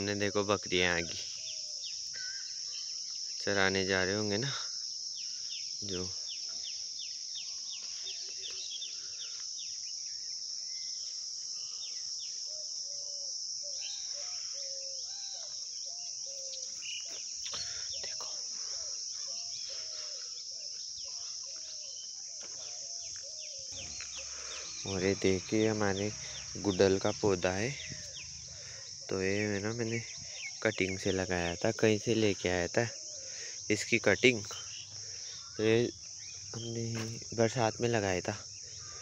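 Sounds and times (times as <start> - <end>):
birds chirping: 0.0 - 39.0
insects droning: 0.0 - 39.0.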